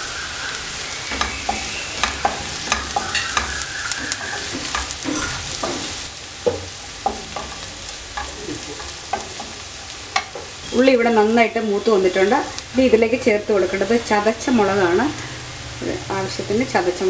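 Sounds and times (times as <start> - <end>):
shallots sizzling in hot oil: 0.0 - 17.0
spatula scraping and knocking pan: 0.7 - 10.7.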